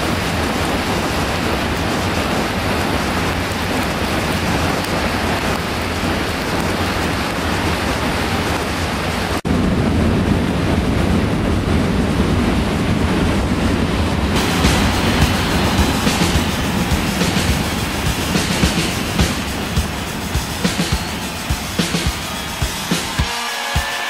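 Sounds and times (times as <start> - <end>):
river rushing over a dam: 13.8 - 23.2.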